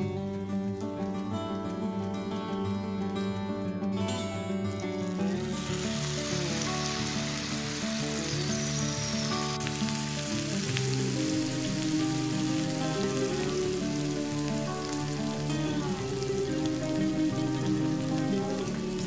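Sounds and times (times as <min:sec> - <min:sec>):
background music: 0:00.0 - 0:19.0
deep-frying sizzle in hot oil: 0:04.7 - 0:19.0.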